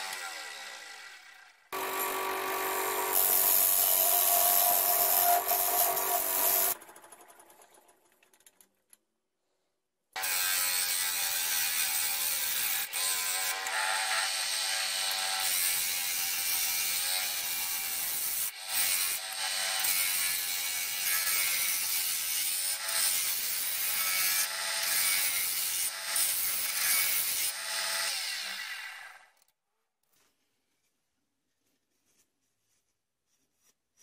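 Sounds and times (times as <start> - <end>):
lathe hum: 0.1 - 7.1
wood lathe tool scraping wood: 1.8 - 7.1.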